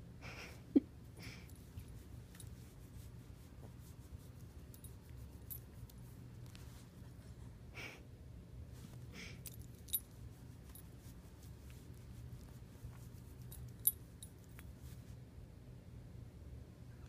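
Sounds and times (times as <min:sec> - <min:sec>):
low steady hum: 0:00.0 - 0:17.0
hand rustling dog fur: 0:01.4 - 0:07.4, 0:08.7 - 0:15.2.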